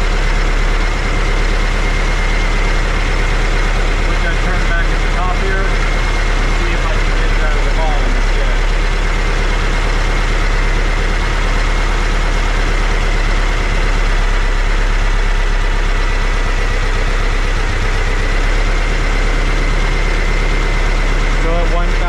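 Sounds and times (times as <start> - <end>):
engine idling: 0.0 - 22.0.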